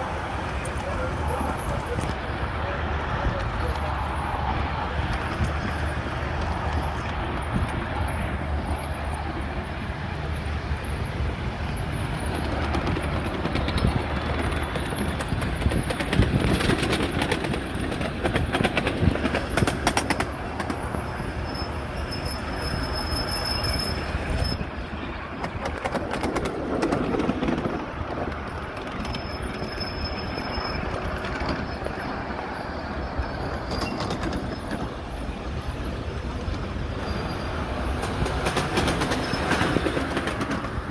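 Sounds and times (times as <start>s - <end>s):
train rolling on rails: 0.0s - 40.9s
wheels clicking over track: 0.0s - 40.9s
high wheel squeal: 3.6s - 16.6s, 19.4s - 25.4s, 27.8s - 40.2s.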